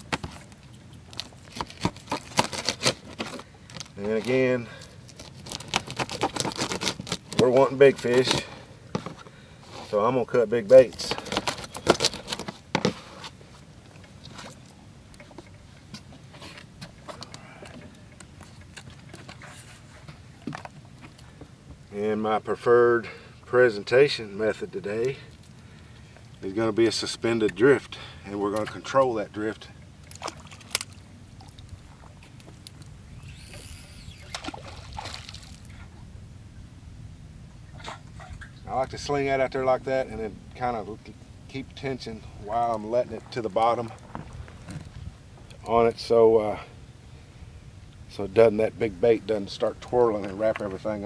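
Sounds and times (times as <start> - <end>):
clicks and rustles of handling: 0.0 - 10.0, 10.7 - 21.8
water lapping around boat: 10.7 - 21.6, 25.2 - 36.0, 37.6 - 38.6, 41.8 - 45.6.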